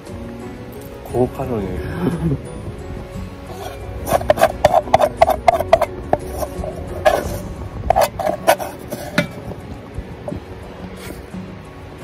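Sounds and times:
spoon scraping metal pot: 3.5s - 9.5s.

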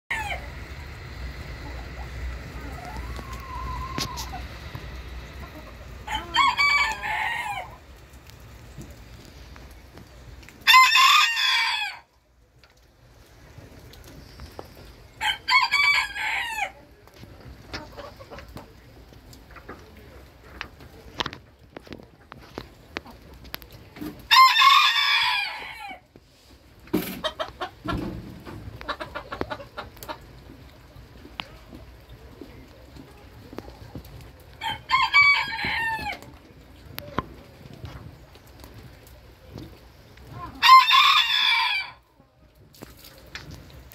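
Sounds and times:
rooster crowing: 0.1s - 0.6s, 2.4s - 4.4s, 6.0s - 7.7s, 10.6s - 12.1s, 15.2s - 16.8s, 24.3s - 26.0s, 34.6s - 36.2s, 40.6s - 42.0s
chicken clucking calls: 0.1s - 12.2s, 13.4s - 42.5s.

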